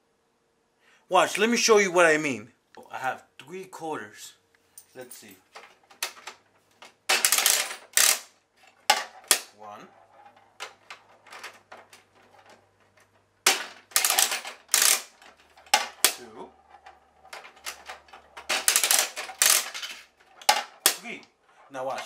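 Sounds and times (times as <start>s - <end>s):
coins clicking in vending mechanism: 5.2s - 9.5s, 10.1s - 22.0s.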